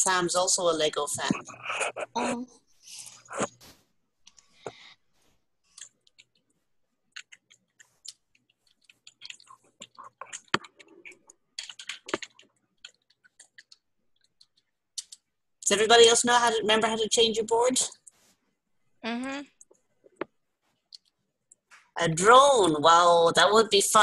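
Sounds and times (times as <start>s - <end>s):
typing on computer keyboard: 7.2s - 15.2s.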